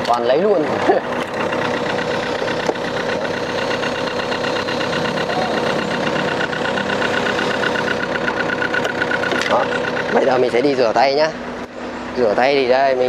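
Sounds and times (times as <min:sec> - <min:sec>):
engine idling: 0:00.0 - 0:13.0.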